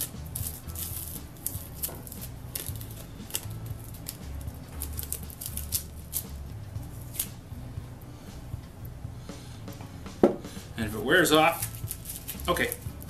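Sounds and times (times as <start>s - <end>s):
tape crumpled in gloved hands: 0.0s - 6.3s, 11.5s - 13.0s
masking tape peeling and crackling: 0.0s - 7.4s, 11.4s - 13.0s.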